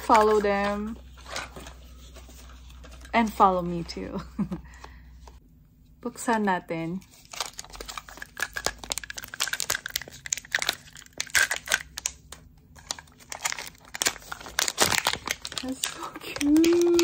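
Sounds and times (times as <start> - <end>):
plastic film crinkling: 7.0 - 17.0.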